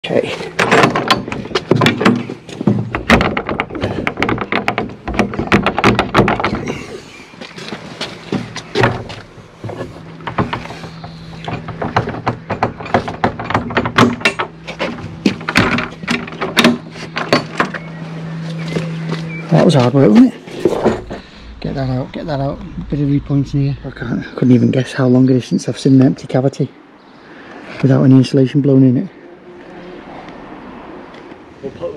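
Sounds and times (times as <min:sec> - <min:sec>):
steady low hum: 0:00.2 - 0:27.5
wooden gate rattling: 0:00.5 - 0:17.8.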